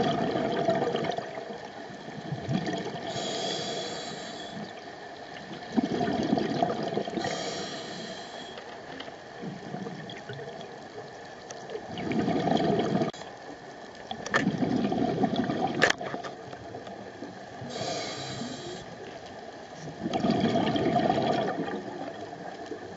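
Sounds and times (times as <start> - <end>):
rush of exhaled bubbles: 0.0 - 1.5, 2.2 - 3.6, 5.5 - 7.7, 11.9 - 13.2, 14.4 - 16.2, 20.0 - 22.4
regulator hissing inhale: 3.0 - 4.8, 7.2 - 8.7, 17.6 - 19.0.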